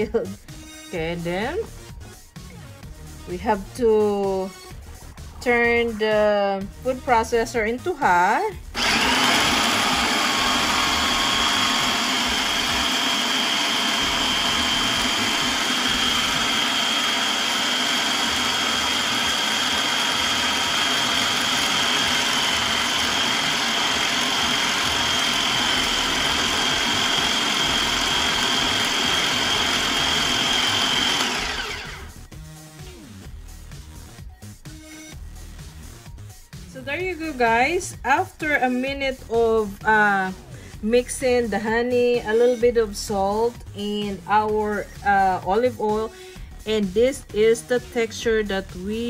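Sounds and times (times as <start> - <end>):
food processor whining: 8.6 - 32.3.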